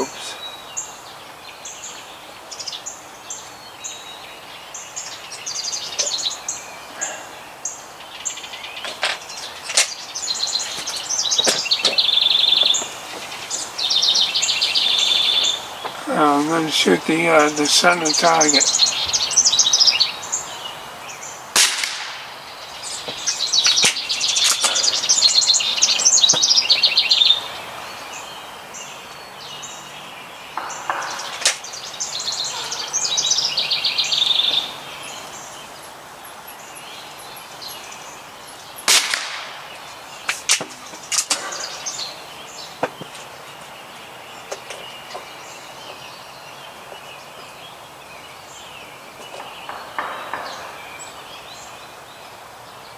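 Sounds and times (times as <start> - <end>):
songbird singing fast trills: 0.0 - 52.9
air rifle firing cracks: 21.5 - 22.4, 38.9 - 41.8.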